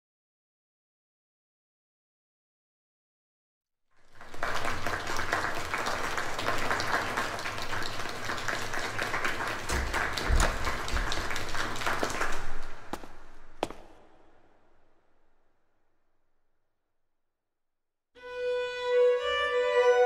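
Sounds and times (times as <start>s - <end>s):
audience applause: 4.0s - 13.9s.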